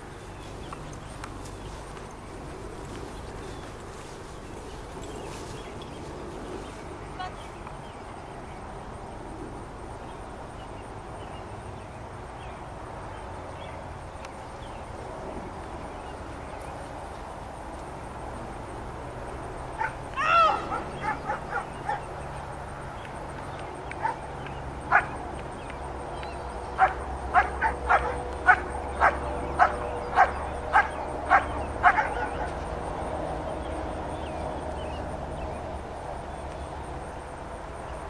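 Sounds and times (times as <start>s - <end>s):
dog barking: 20.6s - 22.0s, 24.0s - 24.2s, 24.9s - 25.1s, 26.8s - 32.5s.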